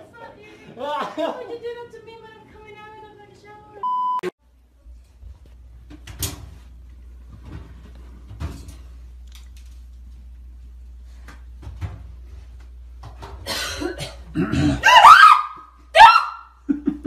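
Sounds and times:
steady low hum: 1.7 - 14.8.

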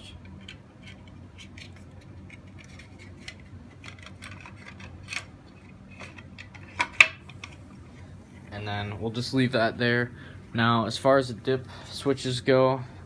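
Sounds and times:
wires and plastic box clicking: 0.2 - 7.6.

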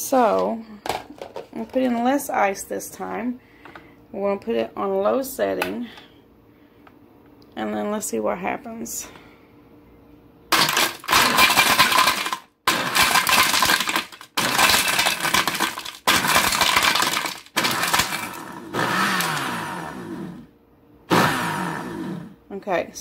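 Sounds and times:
ice rattling in blender jar: 10.5 - 19.4
blender motor running: 10.5 - 20.5, 21.1 - 22.4.

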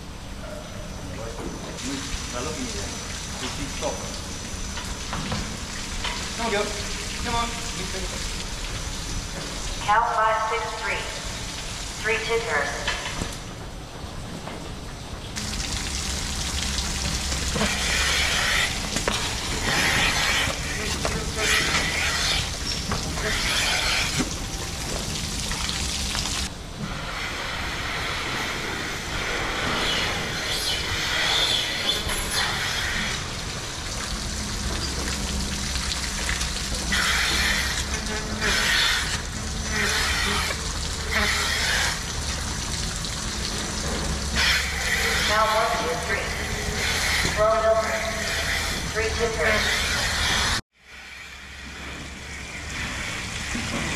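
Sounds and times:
milking machinery humming: 12.3 - 53.9.

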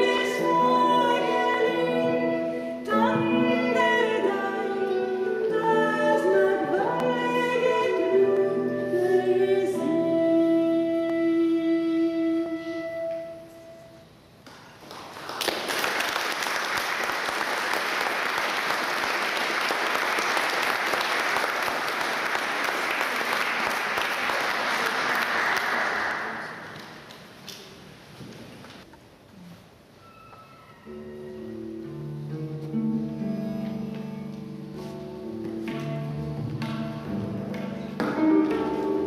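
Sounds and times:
woman singing: 0.0 - 13.3
audience applauding: 14.6 - 27.2.

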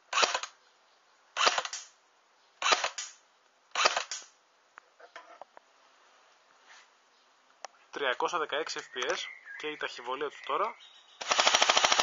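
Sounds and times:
airsoft gun firing single shots: 1.4 - 2.0, 2.6 - 4.3, 11.2 - 12.0.

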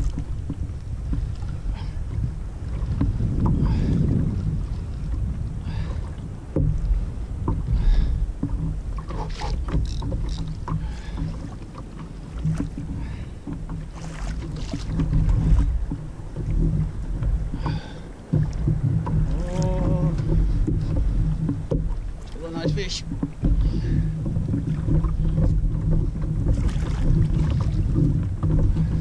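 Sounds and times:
water lapping against kayak: 0.0 - 29.0
wind buffeting microphone: 0.0 - 29.0
fishing reel clicks and knocks: 9.8 - 10.5.

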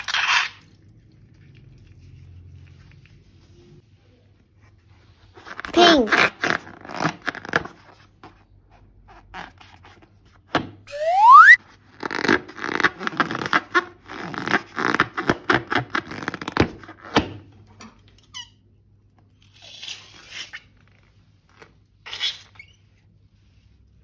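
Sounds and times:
balloon squeak rising in pitch: 10.9 - 11.6
balloon and slime crackling: 10.9 - 16.8.

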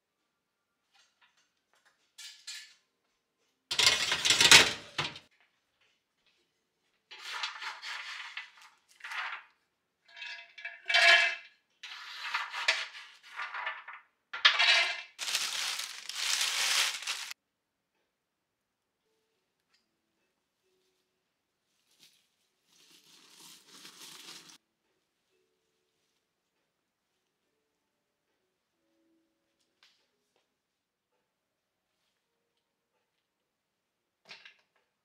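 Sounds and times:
nuts rattling on a metal tray: 3.7 - 5.2, 13.5 - 17.3.

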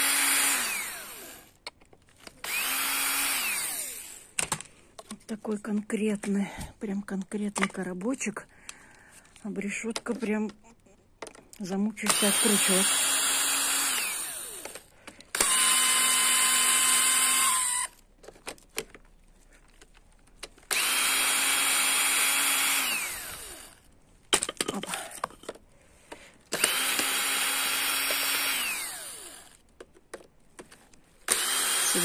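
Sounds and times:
cordless drill whining: 0.0 - 1.6, 2.4 - 4.4, 12.0 - 18.0, 20.6 - 23.9, 26.5 - 29.6, 31.2 - 32.0.

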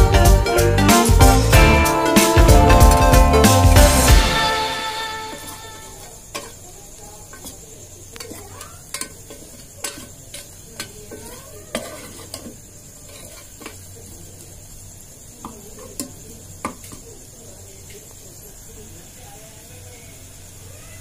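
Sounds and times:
onions sizzling: 0.0 - 21.0
spoon scraping pot: 5.3 - 6.6, 8.2 - 13.9
metal spoon clinking on pot: 6.3 - 6.6, 8.2 - 13.8.

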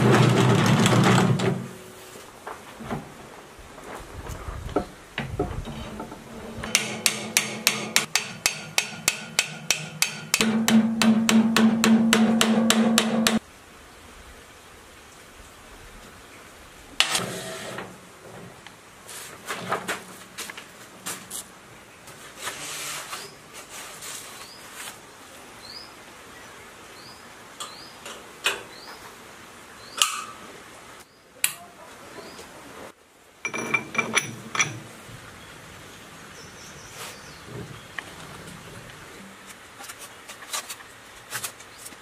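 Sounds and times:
metal clicks and knocks: 4.8 - 13.4, 33.5 - 34.9.

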